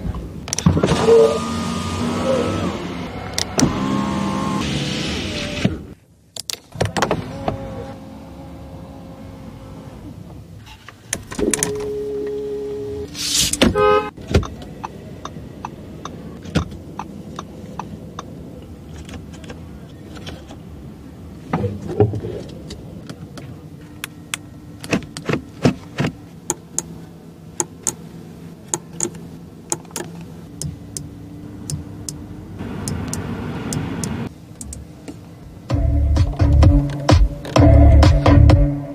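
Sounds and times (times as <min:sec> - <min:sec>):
electric window motor hum: 0:01.4 - 0:05.9, 0:07.1 - 0:10.1.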